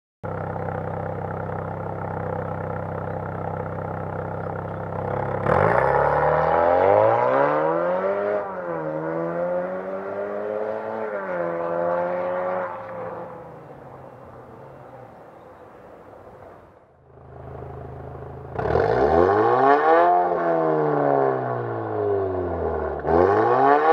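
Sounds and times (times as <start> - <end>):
car engine idling: 0.2 - 6.0, 13.0 - 18.6
car accelerating and shifting gears: 0.6 - 23.9.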